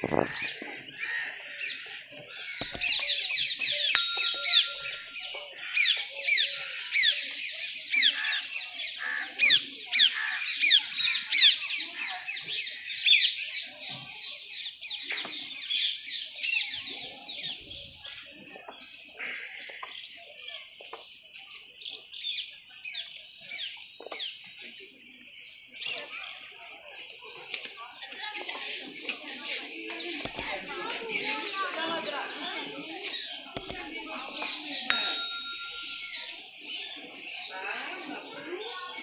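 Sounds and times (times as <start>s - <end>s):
birds chirping: 0.0s - 8.9s, 29.8s - 39.0s.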